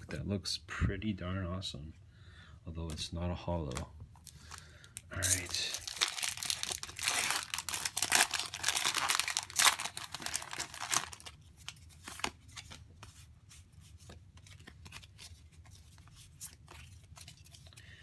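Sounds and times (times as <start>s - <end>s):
trading cards handling: 2.9s - 17.8s
foil wrapper crinkling: 4.2s - 12.4s.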